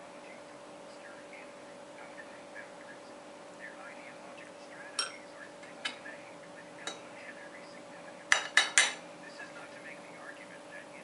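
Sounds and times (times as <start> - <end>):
cutlery clinking on china and glass: 5.0 - 5.2, 8.3 - 9.0.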